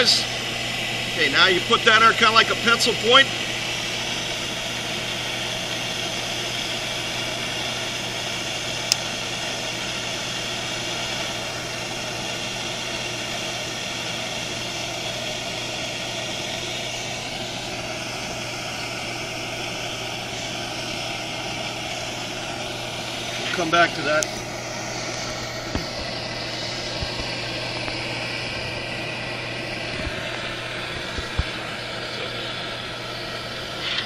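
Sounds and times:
gas torch hissing: 0.0s - 34.0s.

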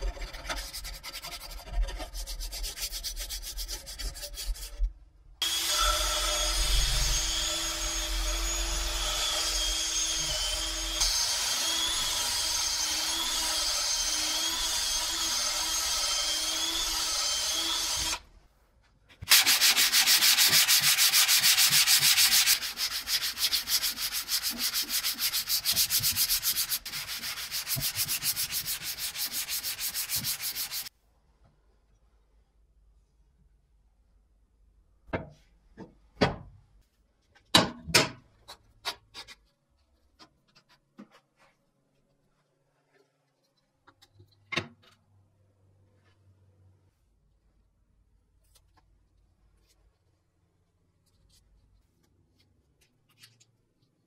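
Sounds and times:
sanding block rubbing on steel: 0.0s - 4.8s, 19.3s - 30.9s
drill spinning sanding drum: 5.4s - 18.2s, 19.3s - 30.9s.

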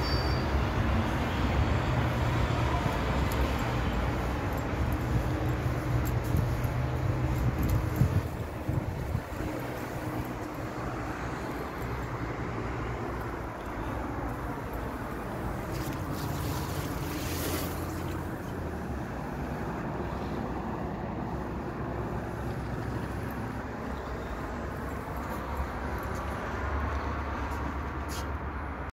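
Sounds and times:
distant traffic hum: 0.0s - 28.9s
wind buffeting microphone: 1.4s - 11.9s.

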